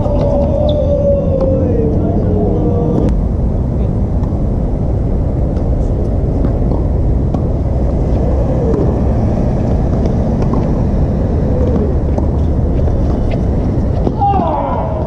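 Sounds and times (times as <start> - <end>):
steady low rumble: 0.0 - 15.0
tennis ball being struck: 6.4 - 9.0, 9.7 - 11.0.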